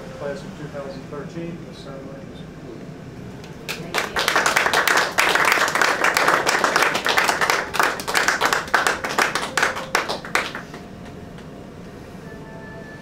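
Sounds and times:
people applauding: 3.4s - 11.5s.

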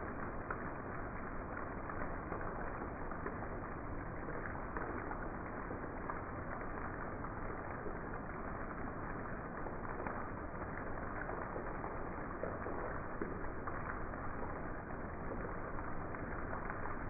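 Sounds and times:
heavy rain pouring: 0.0s - 17.0s.

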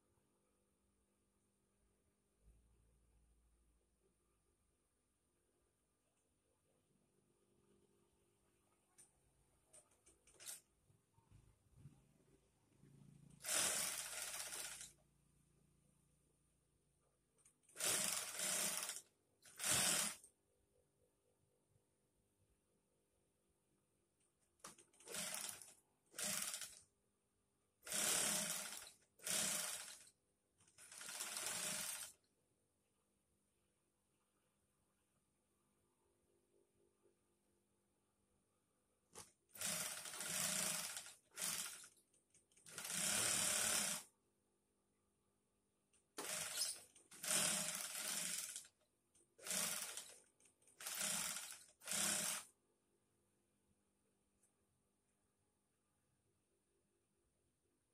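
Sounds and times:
sewing machine running: 10.3s - 10.6s, 13.3s - 15.0s, 17.7s - 20.2s, 25.0s - 26.8s, 27.8s - 30.1s, 30.7s - 32.2s, 39.5s - 41.9s, 42.6s - 44.1s, 46.2s - 48.7s, 49.4s - 50.2s, 50.8s - 52.5s.

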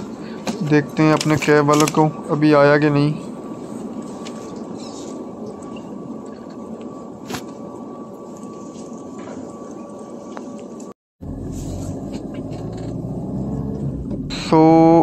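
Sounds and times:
hall noise: 0.0s - 15.0s
car road noise rumble: 11.2s - 15.0s.

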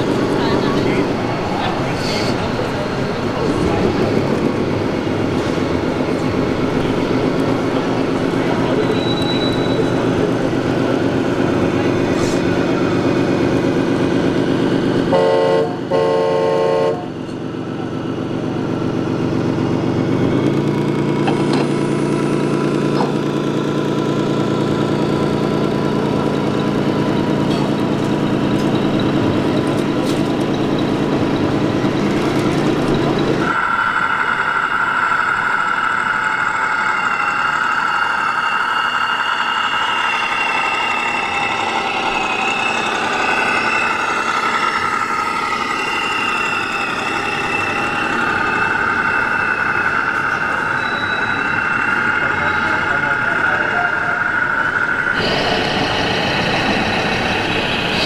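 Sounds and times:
diesel truck engine note: 0.0s - 58.0s
truck horn blasts: 15.0s - 17.2s
high-pitched drone: 33.2s - 58.0s.

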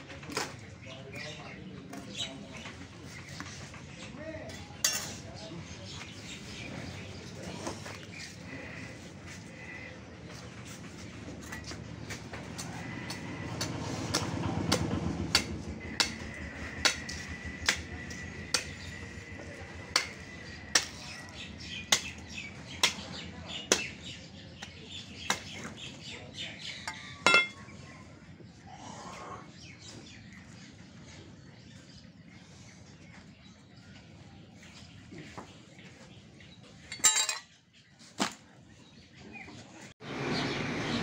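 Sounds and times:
ringing metal clank: 26.9s - 27.6s, 36.9s - 37.5s.

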